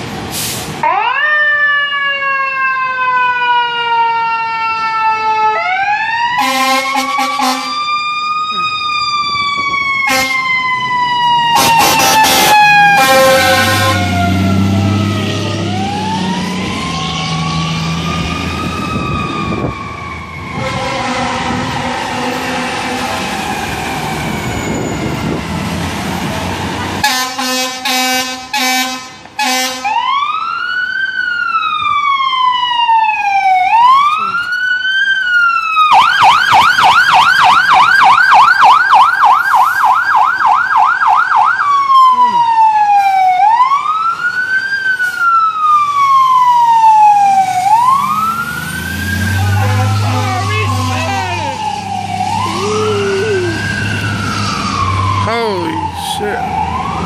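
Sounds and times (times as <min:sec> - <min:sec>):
fire truck engine passing: 0:00.0 - 0:57.0
fire truck siren wailing: 0:00.0 - 0:57.0
short horn blasts: 0:06.4 - 0:07.8, 0:10.1 - 0:10.4, 0:11.6 - 0:14.1, 0:20.6 - 0:23.1, 0:27.0 - 0:29.9
siren fast yelp: 0:31.4 - 0:57.0.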